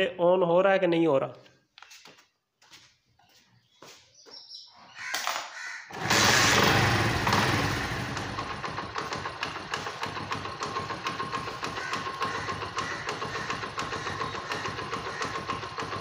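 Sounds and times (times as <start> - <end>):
motorcycle engine starting and idling: 5.9 - 16.0.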